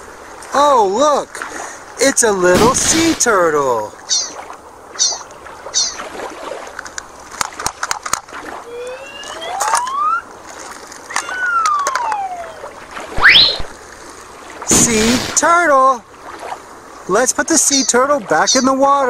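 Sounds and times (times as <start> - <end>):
water lapping on pebbly shore: 2.4 - 9.6, 10.3 - 18.8
bright cartoon jingles: 4.1 - 4.4, 5.0 - 5.2, 17.7 - 18.8
cartoon whistles: 8.7 - 10.2, 11.1 - 13.7
clicks: 11.1 - 12.5
upward swoop: 11.2 - 13.8.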